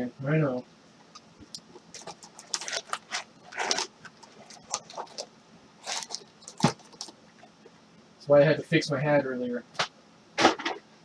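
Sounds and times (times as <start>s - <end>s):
foil packs crinkling: 1.5s - 7.5s.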